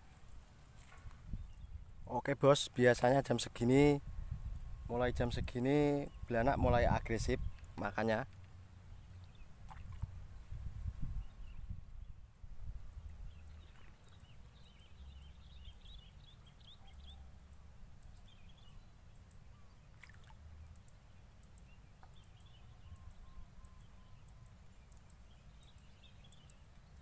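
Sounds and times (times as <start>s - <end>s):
low wind rumble: 1.0s - 2.1s, 3.8s - 7.8s, 8.8s - 13.7s
faint high chirps: 20.6s - 27.0s.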